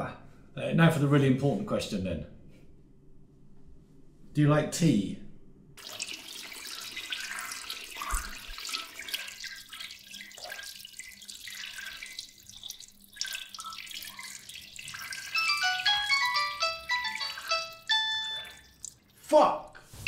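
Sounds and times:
urine splashing into toilet water: 5.8 - 16.1, 17.1 - 19.2
electronic melody of falling notes: 15.4 - 18.7.

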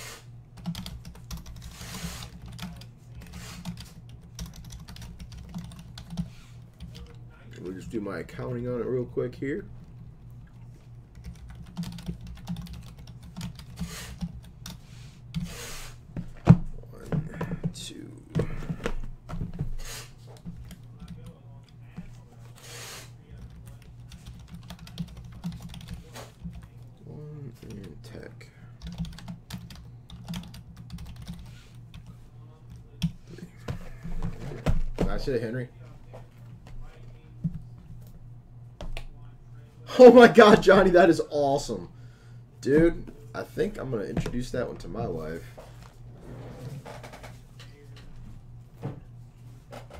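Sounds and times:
steady low hum: 0.0 - 49.9
typing on keyboard: 0.6 - 7.2, 11.2 - 14.8, 23.4 - 26.7, 28.8 - 32.1.

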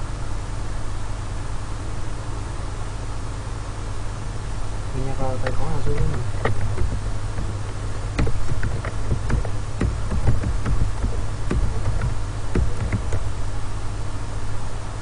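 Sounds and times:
steady low hum: 0.0 - 15.0
keyboard and mouse clicks: 5.4 - 13.3.

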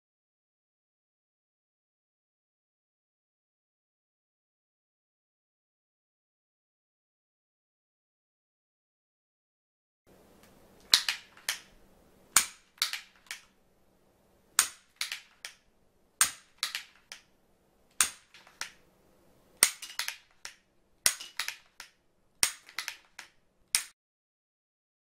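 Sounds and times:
wooden lever mechanism clacking: 19.6 - 23.9.

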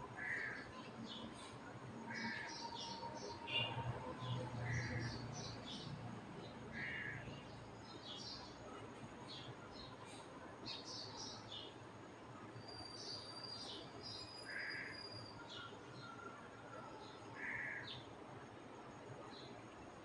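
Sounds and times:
faint birds chirping: 0.0 - 20.0
crow cawing: 6.8 - 7.2, 17.4 - 17.8.

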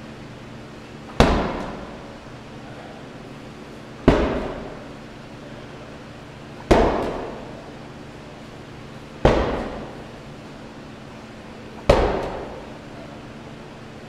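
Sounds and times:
medicine ball thudding on turf: 1.1 - 2.0, 4.0 - 4.9, 6.7 - 7.6, 9.2 - 10.1, 11.8 - 12.6.

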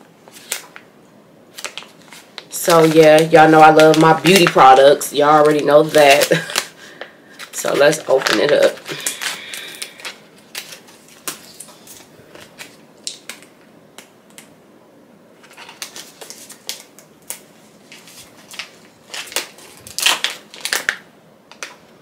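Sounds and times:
packaging crinkling and rustling: 0.2 - 0.9, 1.5 - 13.6, 15.4 - 21.8.

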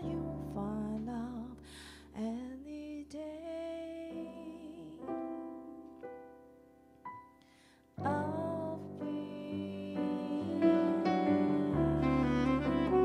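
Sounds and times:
woman singing: 0.0 - 5.9, 8.0 - 13.0
digital piano chords: 3.8 - 13.0
saxophone: 10.3 - 13.0.

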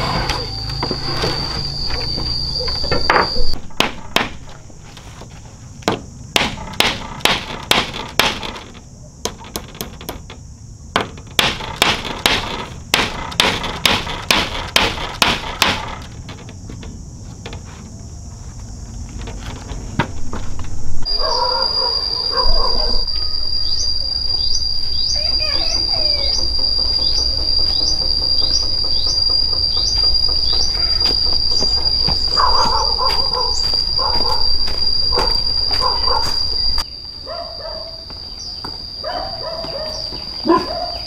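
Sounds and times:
hammer knocking on bamboo poles: 3.1 - 4.5, 5.8 - 8.6, 10.9 - 17.6.

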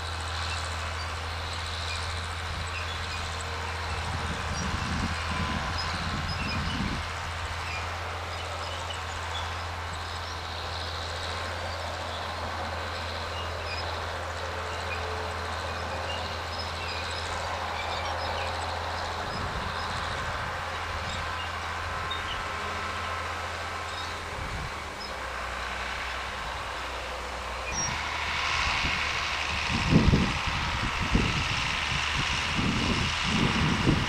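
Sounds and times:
tractor engine under load: 0.0 - 34.0.

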